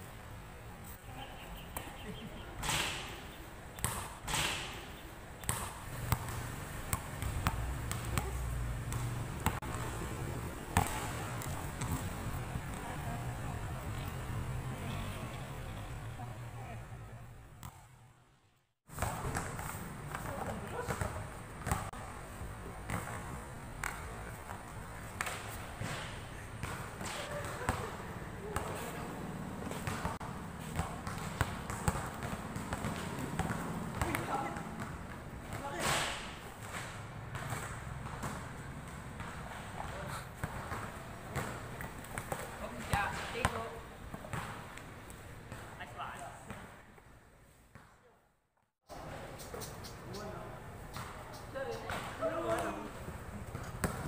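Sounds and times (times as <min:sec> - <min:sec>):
basketball bouncing on concrete: 0:03.8 - 0:13.0, 0:17.6 - 0:17.9, 0:18.9 - 0:28.9, 0:29.6 - 0:44.8, 0:50.9 - 0:54.0.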